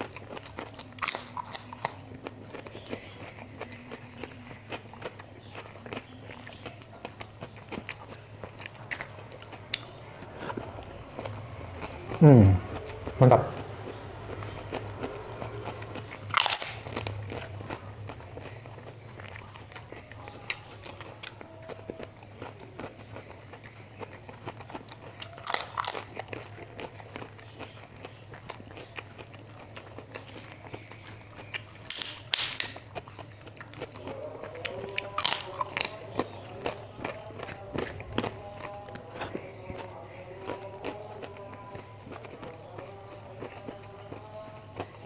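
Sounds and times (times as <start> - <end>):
chewing clicks: 0.0 - 45.0
crackers crunching: 0.0 - 45.0
faint low hum: 0.0 - 45.0.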